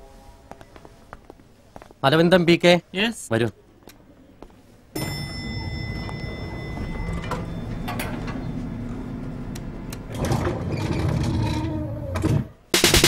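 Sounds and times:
lift hum: 5.0s - 12.2s
lift doors sliding open: 5.0s - 12.5s.

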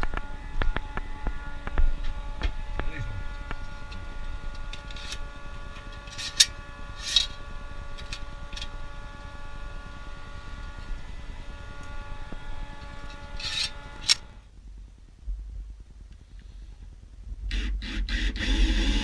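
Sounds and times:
scraping rattles: 0.0s - 8.9s, 12.1s - 14.3s
steady multi-tone hum: 0.0s - 19.0s.

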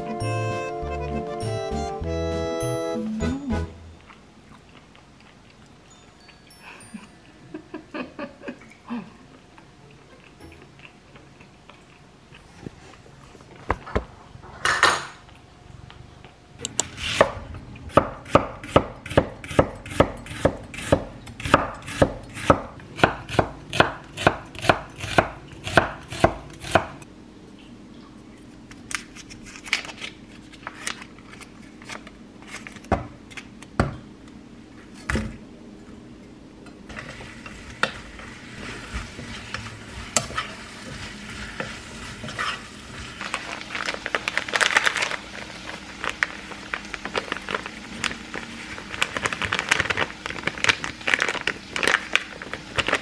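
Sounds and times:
knife chopping on cutting board: 17.9s - 27.0s
faint sizzle: 36.9s - 53.0s.

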